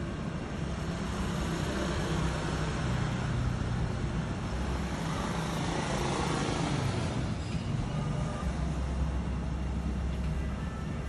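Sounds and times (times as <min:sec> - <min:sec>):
street traffic rumble: 0:00.0 - 0:11.0.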